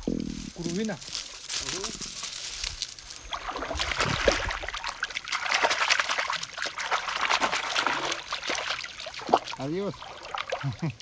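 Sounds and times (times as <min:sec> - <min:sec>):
river water trickling: 0:02.2 - 0:11.0
fish splashing: 0:03.2 - 0:10.9.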